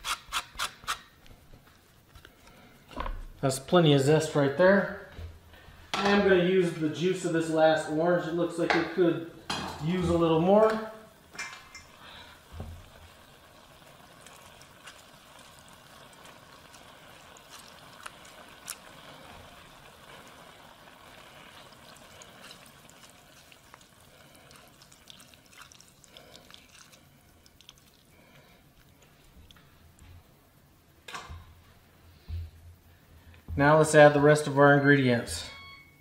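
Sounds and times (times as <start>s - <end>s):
juice trickling and dripping: 11.3s - 30.2s.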